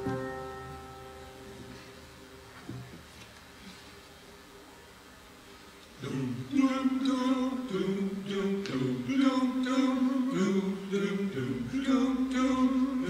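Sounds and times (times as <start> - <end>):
slow song with singing: 5.8 - 13.0.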